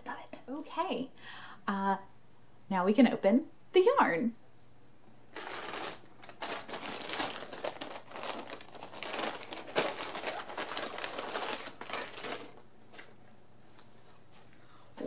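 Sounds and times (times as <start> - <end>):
wrapping crinkling and rustling: 5.3 - 15.0
plastic bag pulled open: 5.4 - 12.6.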